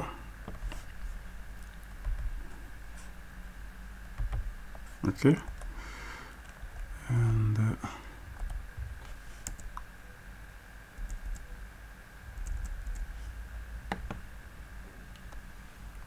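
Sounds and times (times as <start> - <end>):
low hum of a voice: 0.0 - 3.1, 4.8 - 5.7, 6.6 - 9.2
computer keyboard keystrokes: 4.2 - 4.8, 9.4 - 9.9, 11.0 - 11.5, 12.4 - 13.1.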